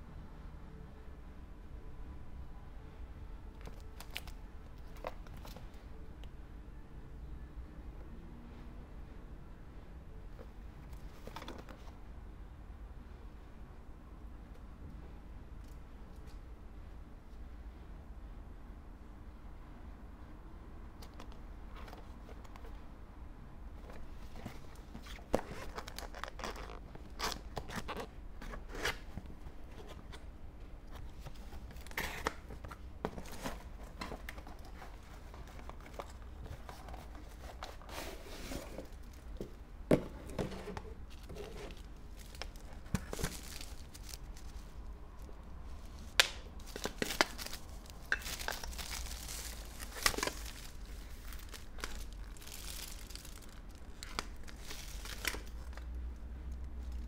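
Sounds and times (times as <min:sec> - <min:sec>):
plastic wrapping crinkling: 0:25.0 - 0:28.1, 0:41.1 - 0:55.8
cardboard packaging tearing: 0:46.6 - 0:55.7.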